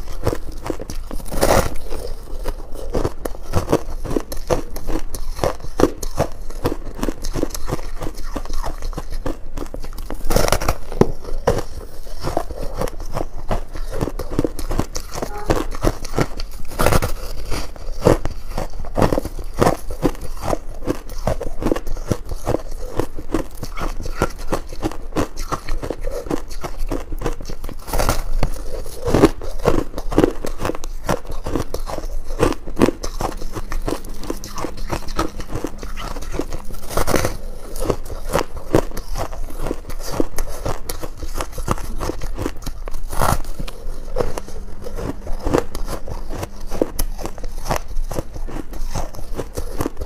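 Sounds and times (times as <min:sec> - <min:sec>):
ice crunching while chewed: 0:00.0 - 0:50.0.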